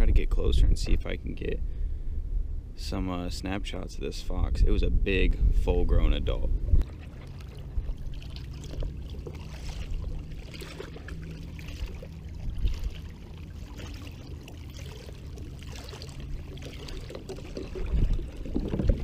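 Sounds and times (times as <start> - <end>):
water sloshing with wading steps: 6.7 - 19.0.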